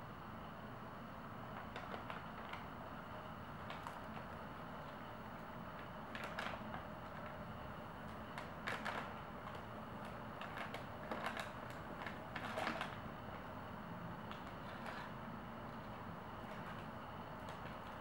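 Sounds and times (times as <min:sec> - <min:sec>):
packing paper crinkling: 0:08.5 - 0:13.0.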